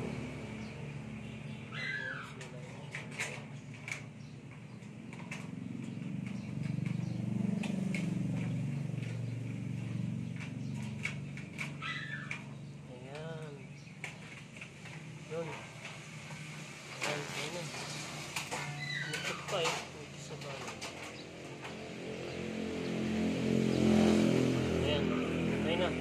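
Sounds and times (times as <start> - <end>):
low motor hum: 0.0 - 26.0
bird chirps: 0.1 - 2.9.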